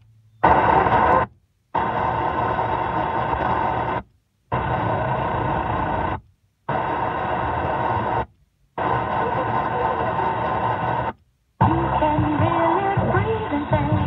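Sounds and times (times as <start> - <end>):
radio static: 0.4 - 14.0.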